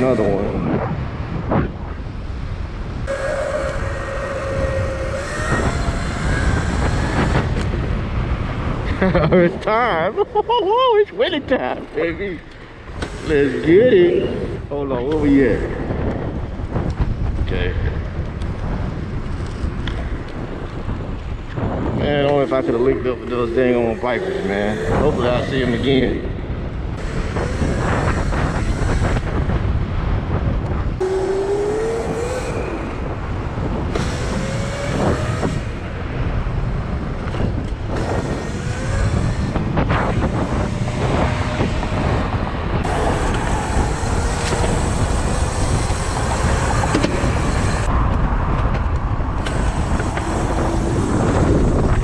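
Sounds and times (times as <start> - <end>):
faint gliding whines: 0.0 - 9.0, 30.9 - 48.1
road and traffic noise: 0.0 - 52.0
wind rushing over microphone: 0.0 - 52.0.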